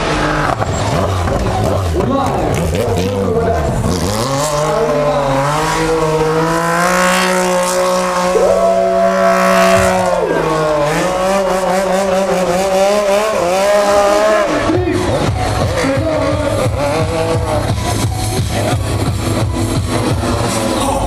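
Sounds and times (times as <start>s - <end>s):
motorcycle engine at high revs: 0.0s - 21.0s
higher steady tone: 8.2s - 11.0s.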